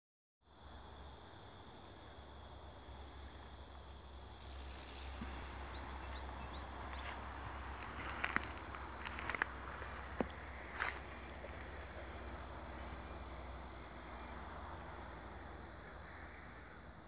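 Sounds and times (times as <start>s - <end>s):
crickets chirping: 0.4s - 17.0s
footsteps through grass: 6.8s - 11.8s.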